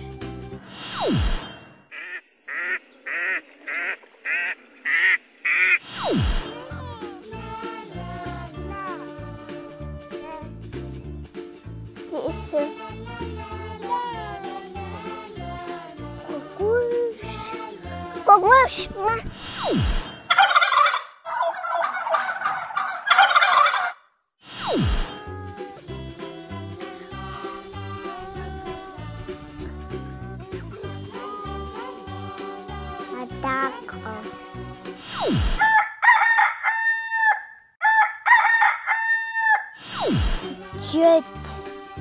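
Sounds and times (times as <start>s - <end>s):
turkey gobbling: 1.9s - 5.8s, 20.3s - 24.1s, 35.6s - 39.7s
rooster crowing: 35.6s - 39.8s.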